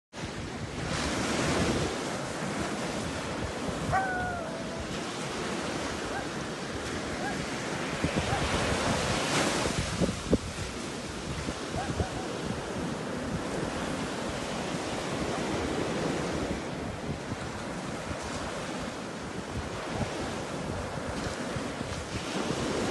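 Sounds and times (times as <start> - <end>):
surf-like wash of noise: 0.2 - 22.9
wind buffeting microphone: 0.2 - 22.9.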